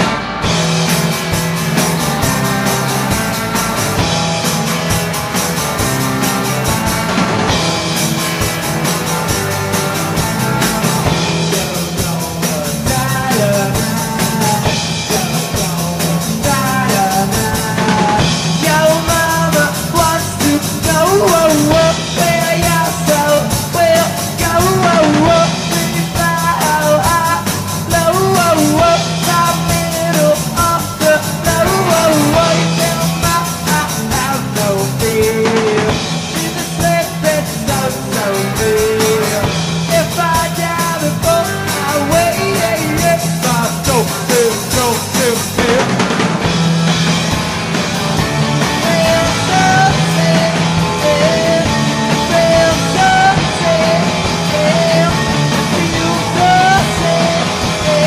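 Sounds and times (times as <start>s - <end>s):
distorted electric guitar: 0.0s - 58.0s
pounding drums: 0.0s - 58.0s
person singing: 9.5s - 46.0s, 48.6s - 58.0s.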